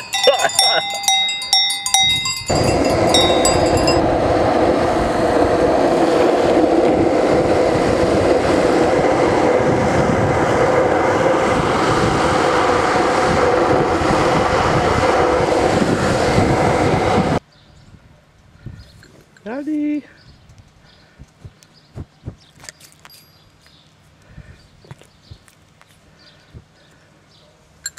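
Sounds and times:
skateboard wheels rolling on asphalt: 0:02.8 - 0:17.4.

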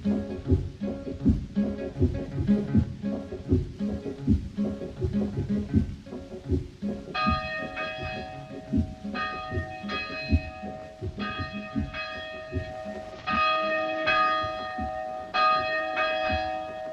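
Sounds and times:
low regular thudding beat: 0:00.0 - 0:16.9
church bell tolling: 0:07.1 - 0:16.9.

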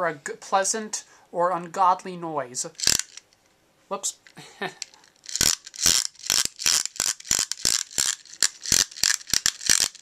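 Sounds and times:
plastic toy ratcheting rattle: 0:02.8 - 0:03.2, 0:04.8 - 0:10.0.

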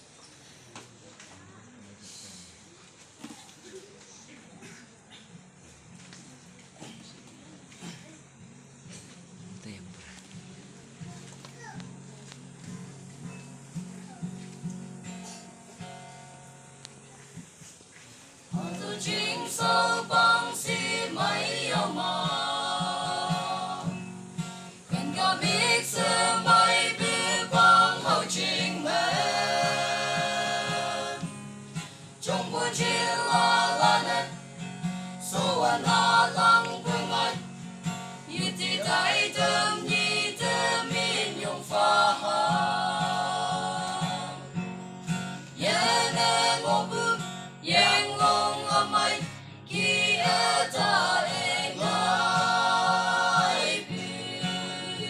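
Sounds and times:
strummed acoustic guitar: 0:07.8 - 0:55.0
group of voices singing: 0:18.5 - 0:44.8, 0:45.4 - 0:55.0.

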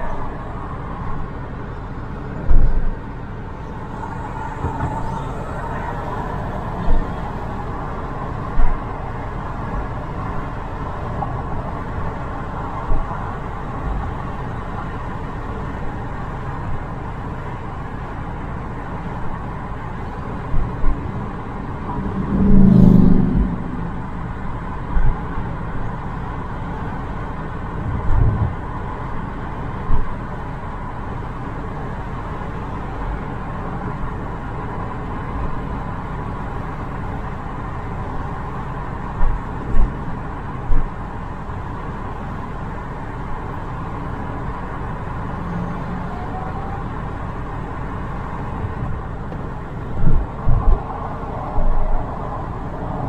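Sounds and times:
car road and engine noise: 0:00.0 - 0:53.0
low thumps: 0:21.8 - 0:25.2.

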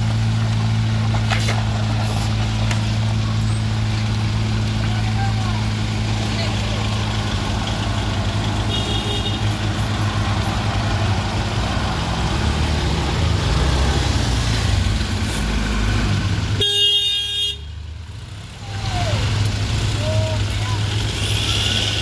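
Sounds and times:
heavy truck engine running: 0:00.0 - 0:22.0
vehicle horn: 0:08.6 - 0:09.6, 0:16.6 - 0:17.7, 0:21.0 - 0:22.0.

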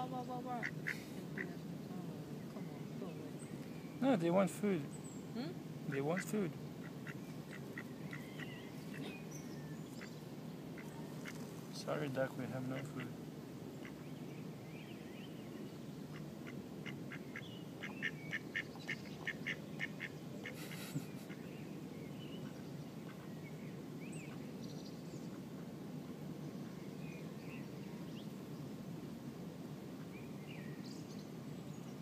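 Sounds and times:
low background noise: 0:00.0 - 0:32.0
ducks quacking: 0:00.4 - 0:01.6, 0:05.9 - 0:09.2, 0:12.6 - 0:13.2, 0:16.1 - 0:21.5.

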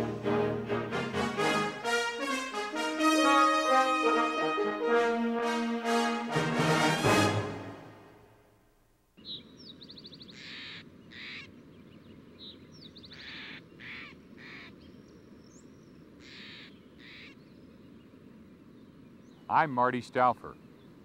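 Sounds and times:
low outdoor hiss: 0:00.0 - 0:21.0
bird trill: 0:09.2 - 0:17.5
harsh raspy bird calls: 0:09.9 - 0:11.6, 0:12.9 - 0:14.9, 0:16.2 - 0:17.5.

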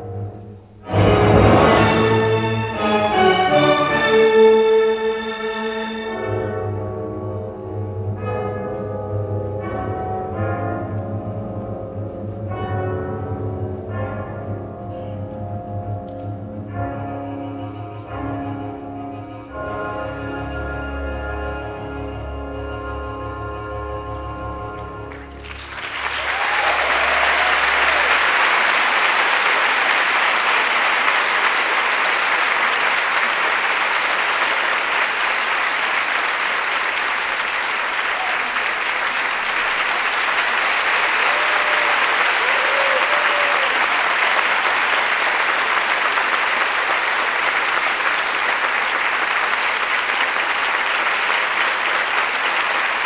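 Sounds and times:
held music notes: 0:00.0 - 0:25.8
audience applauding: 0:25.0 - 0:53.0.

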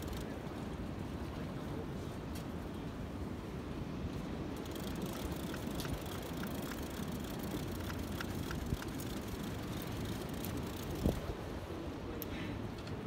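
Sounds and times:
fishing reel clicking: 0:00.0 - 0:00.3, 0:04.6 - 0:11.2
wind noise on microphone: 0:04.6 - 0:11.8.

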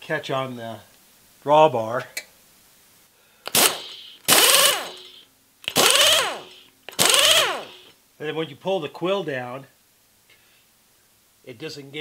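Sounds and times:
power drawbar bursts with falling whine: 0:03.5 - 0:07.9.

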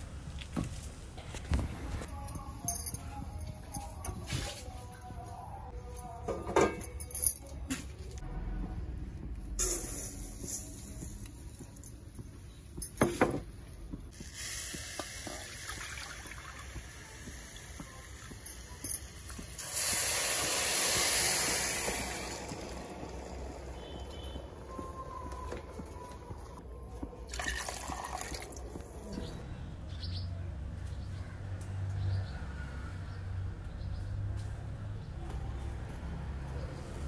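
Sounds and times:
gas burner hissing: 0:09.6 - 0:11.4, 0:14.1 - 0:15.7, 0:19.5 - 0:24.1
water pouring into a pan: 0:14.9 - 0:17.0.

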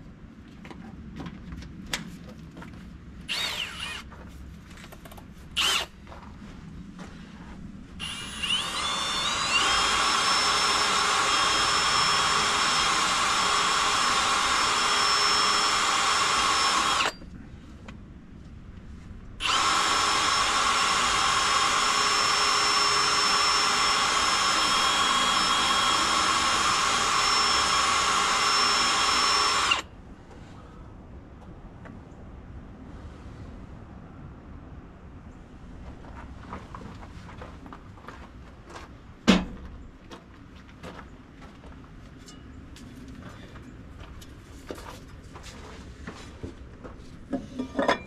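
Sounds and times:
power tool motor whining: 0:03.3 - 0:04.1, 0:05.6 - 0:05.9, 0:08.0 - 0:17.2, 0:19.4 - 0:29.9.

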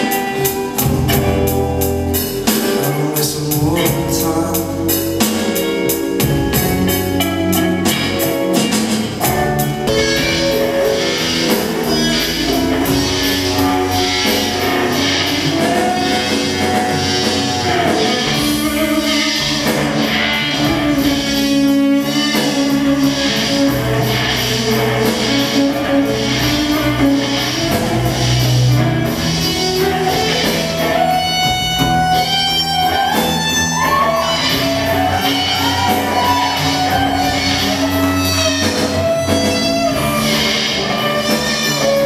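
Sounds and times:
bass and drums: 0:00.0 - 0:42.0
electric guitar: 0:00.0 - 0:42.0.

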